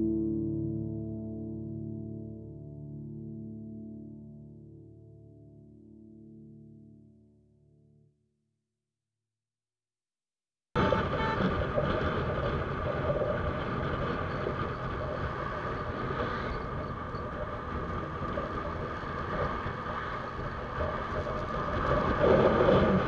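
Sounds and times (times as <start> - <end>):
motorcycle engine running: 10.8 - 23.0
wind noise on microphone: 10.8 - 23.0.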